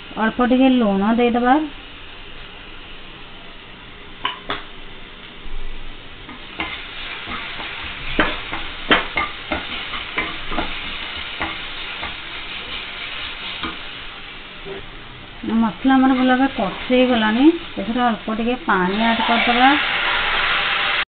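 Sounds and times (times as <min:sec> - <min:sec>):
food sizzling in hot oil: 0:00.0 - 0:21.0
spatula tapping on pan: 0:06.3 - 0:12.2, 0:13.6 - 0:13.8.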